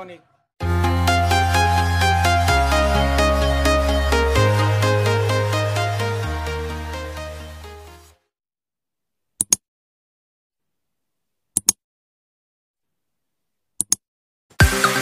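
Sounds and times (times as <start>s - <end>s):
electronic music: 0.6s - 8.1s, 14.6s - 15.0s.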